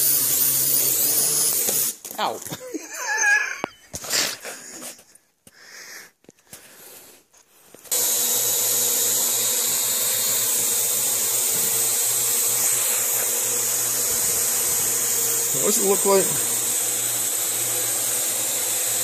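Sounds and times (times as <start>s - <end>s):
drone rotors whirring: 0.0s - 2.0s, 7.8s - 19.0s.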